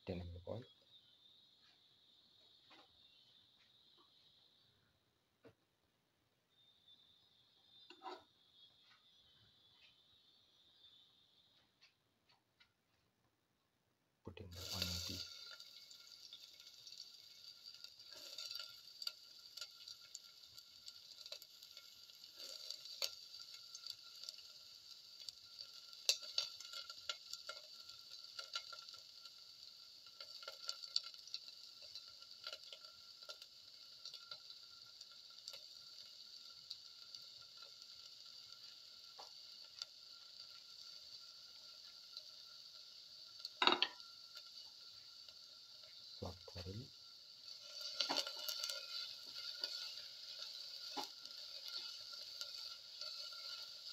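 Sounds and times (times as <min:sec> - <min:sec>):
faint steady hiss: 0:00.0 - 0:53.9
clatter in pan: 0:14.6 - 0:45.2, 0:47.4 - 0:53.9.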